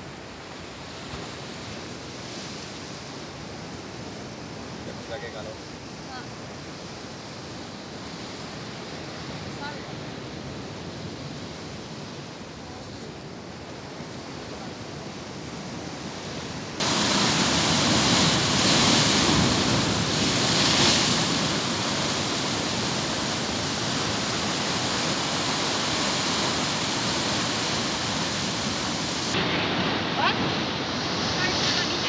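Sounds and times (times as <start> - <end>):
sea waves breaking on rocks: 16.1 - 32.0.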